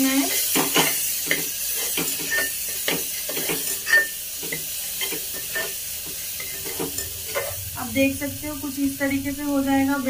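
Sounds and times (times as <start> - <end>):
food sizzling in hot oil: 0.0 - 10.0
steel ladle scraping pot: 0.3 - 4.2, 6.4 - 7.6.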